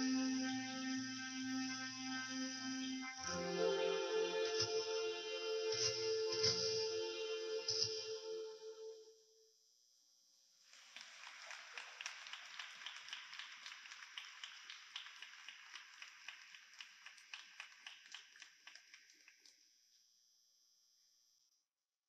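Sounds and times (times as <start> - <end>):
audience applauding: 10.8 - 19.6.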